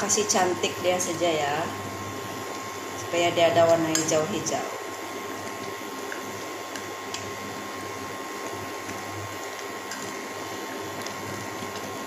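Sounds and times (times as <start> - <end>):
electric cooktop hum: 0.0 - 12.0
soup bubbling at a boil: 0.0 - 12.0.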